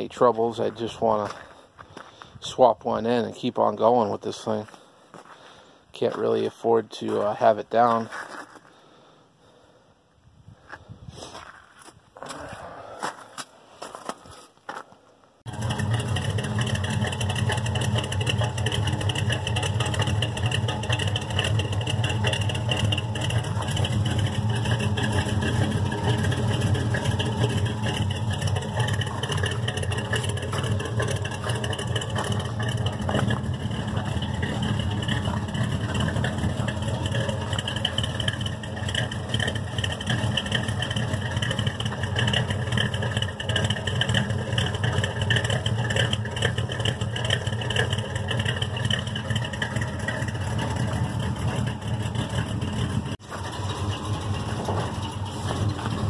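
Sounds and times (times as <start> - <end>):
pickup engine idling: 15.4 - 56.0.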